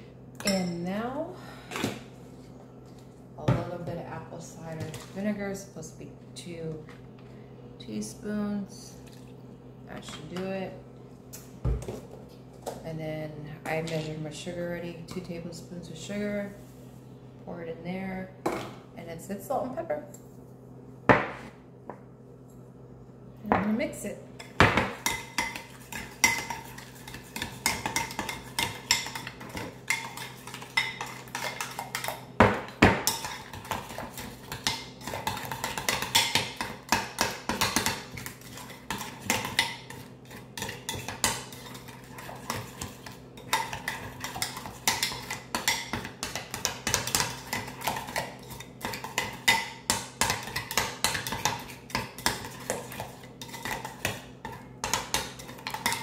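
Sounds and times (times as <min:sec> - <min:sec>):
utensil scraping a bowl: 0:25.0 - 0:32.2, 0:33.0 - 0:49.6.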